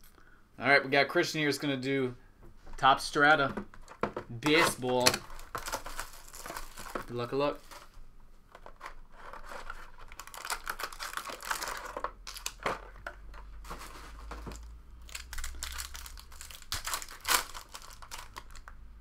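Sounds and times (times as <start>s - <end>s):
card packaging crinkling and tearing: 4.4s - 18.8s.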